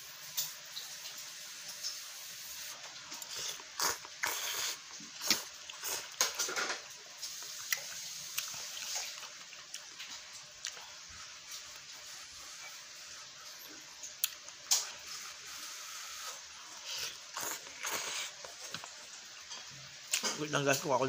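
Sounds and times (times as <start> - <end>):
person slurping noodles: 3.2 - 6.1, 15.0 - 18.7.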